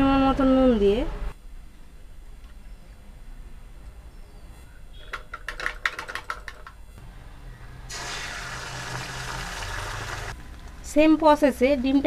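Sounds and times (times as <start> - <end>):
egg sizzling in hot oil: 7.9 - 10.4.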